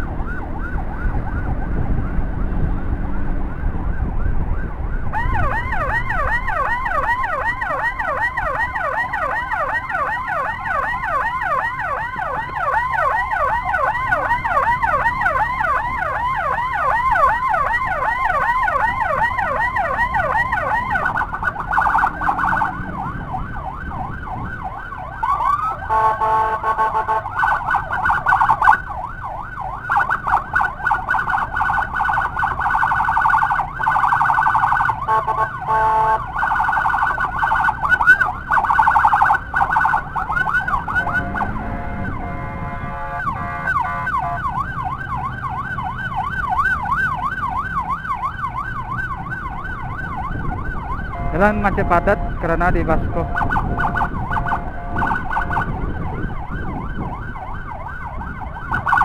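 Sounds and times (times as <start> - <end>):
electronic emergency siren: 0.0 - 59.0
multi-tone horn blast: 25.9 - 27.3, 35.1 - 36.3, 41.0 - 44.4, 51.2 - 53.5, 54.3 - 55.3.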